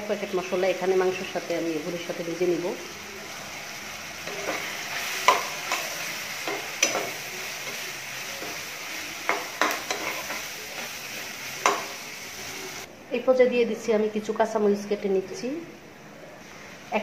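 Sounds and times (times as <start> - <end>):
food sizzling in oil: 0.0 - 12.9.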